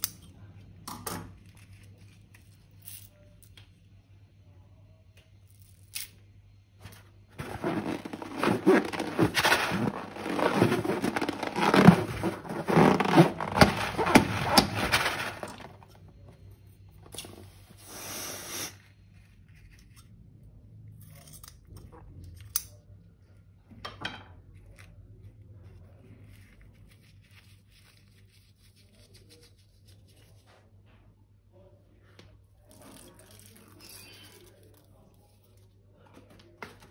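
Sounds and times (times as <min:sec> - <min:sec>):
scissors cutting rubber balloon: 0:07.4 - 0:15.8
slime squishing and crackling: 0:07.4 - 0:15.8.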